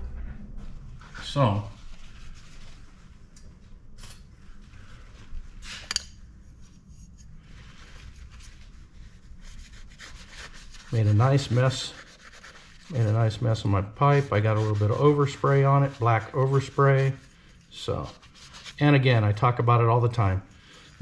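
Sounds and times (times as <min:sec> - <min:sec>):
paper towel rubbing on metal pipe: 0:01.3 - 0:03.2, 0:06.6 - 0:21.0.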